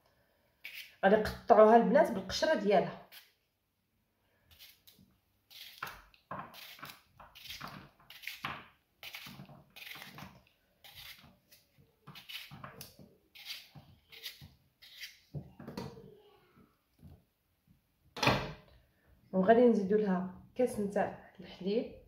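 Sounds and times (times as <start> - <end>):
knife cutting potato: 0.6 - 1.4, 3.0 - 3.4, 4.5 - 15.9.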